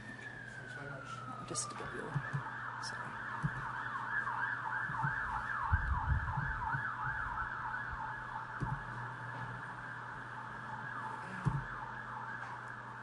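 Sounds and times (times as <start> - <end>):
siren yelping: 0.0 - 13.0
low thumps: 4.8 - 9.9, 11.4 - 11.9.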